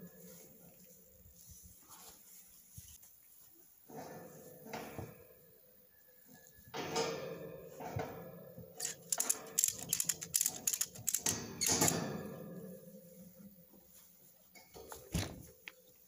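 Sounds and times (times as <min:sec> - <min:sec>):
ratchet handle clicking: 0:08.8 - 0:12.0.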